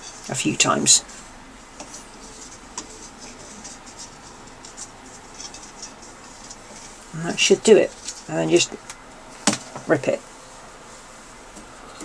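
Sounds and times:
tape rustling with small ticks: 1.0 - 9.8.

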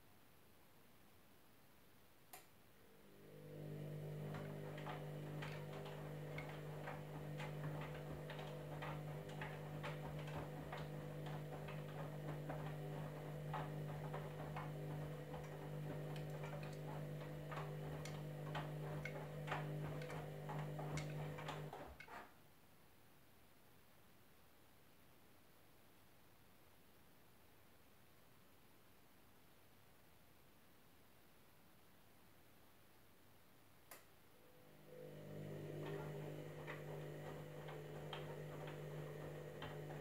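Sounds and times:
washing machine drum motor humming: 2.9 - 22.2, 34.4 - 40.0
washing machine click: 3.5 - 22.1, 35.0 - 40.0.

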